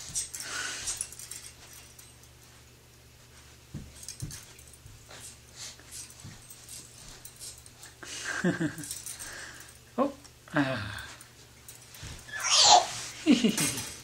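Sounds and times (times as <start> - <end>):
baby bouncer creaking and jangling: 0.0 - 2.3, 8.7 - 9.8.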